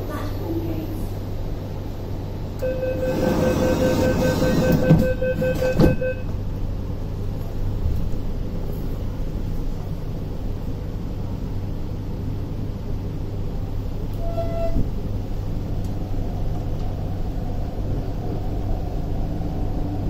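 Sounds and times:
low train equipment hum: 0.0s - 20.0s
high door warning beeping: 2.6s - 6.4s
train doors shutting thump: 3.1s - 6.4s.

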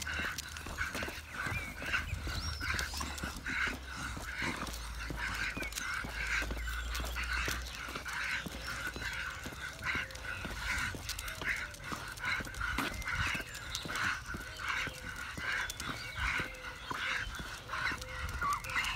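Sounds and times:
wind rumble on microphone: 0.0s - 3.4s
dogs panting hard: 0.0s - 18.9s.

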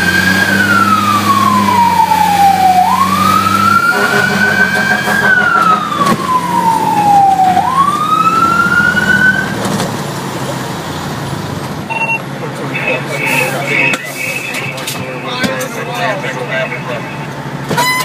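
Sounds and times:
fire truck siren wailing: 0.0s - 9.8s, 12.6s - 18.0s
truck engine running: 0.0s - 17.8s.

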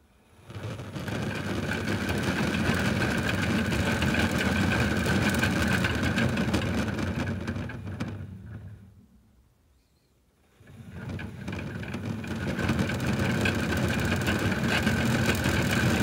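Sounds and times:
water beads churning in drum: 0.3s - 8.7s, 10.6s - 16.0s.

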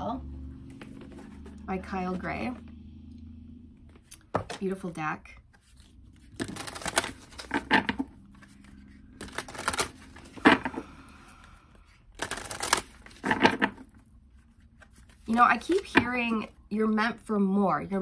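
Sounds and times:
cards being shuffled: 0.6s - 1.6s, 5.4s - 16.5s.

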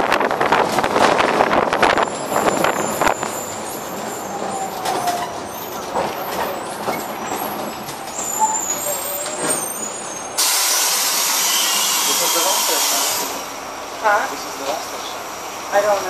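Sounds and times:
bus engine and road rumble: 0.0s - 16.0s
loud hiss: 10.4s - 13.5s.

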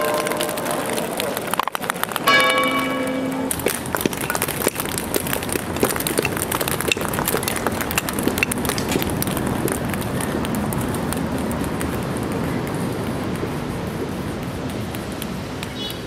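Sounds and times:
ping-pong balls bouncing on stone: 2.2s - 10.0s.

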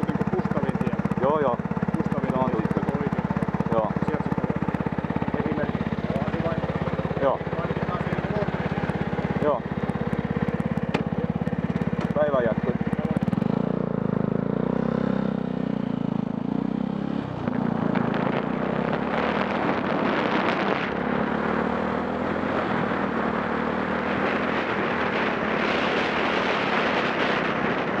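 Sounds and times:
motorcycle engine accelerating: 0.0s - 28.0s
wind noise on microphone: 17.5s - 21.0s, 24.1s - 28.0s.

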